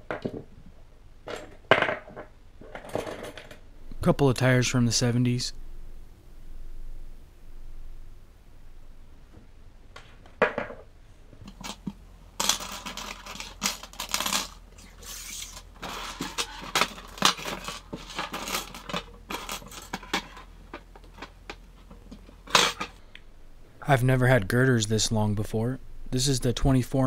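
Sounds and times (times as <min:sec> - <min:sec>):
metal parts clinking on table: 0:11.5 - 0:20.4, 0:22.5 - 0:23.0.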